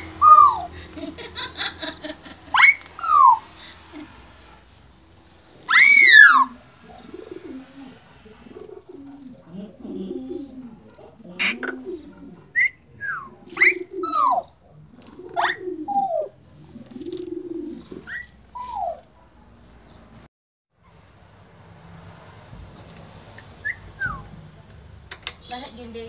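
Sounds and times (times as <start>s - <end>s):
bird cooing: 0.0s - 4.1s, 5.7s - 19.2s.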